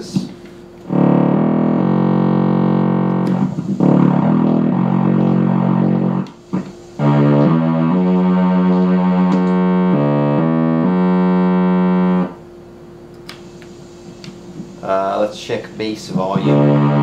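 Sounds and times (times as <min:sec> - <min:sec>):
faint steady hum: 0:00.0 - 0:17.0
string synthesizer chords: 0:00.8 - 0:12.6, 0:16.4 - 0:17.0.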